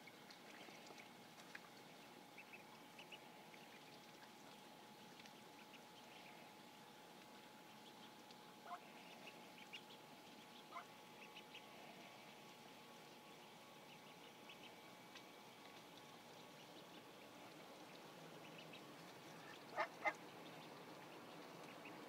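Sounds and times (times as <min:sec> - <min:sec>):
ducklings peeping: 0:00.0 - 0:22.0
faint steady hum: 0:00.0 - 0:22.0.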